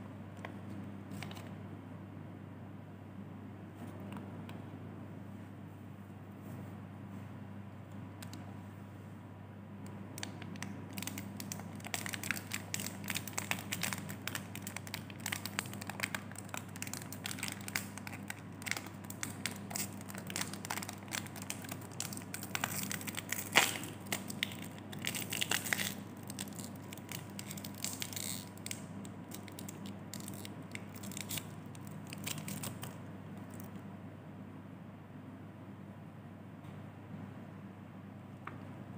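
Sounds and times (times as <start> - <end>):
plastic wrapper crinkling: 1.1 - 1.5, 10.2 - 33.8.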